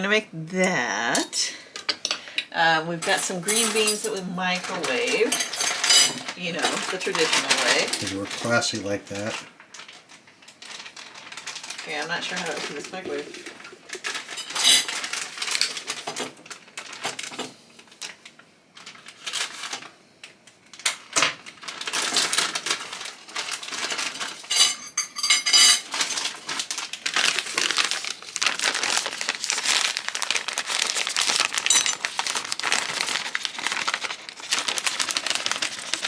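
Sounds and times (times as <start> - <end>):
plastic bag crinkling: 3.0 - 36.0
dishes and cutlery clinking: 24.5 - 25.9.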